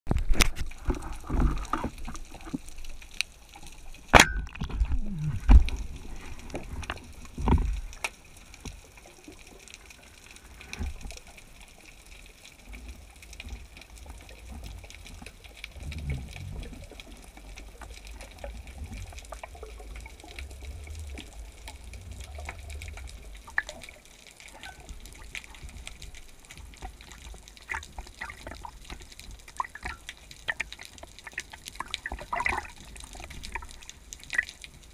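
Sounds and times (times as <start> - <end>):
underwater water rumble: 0.1 - 34.9
low underwater thuds: 14.5 - 17.4, 18.3 - 24.0.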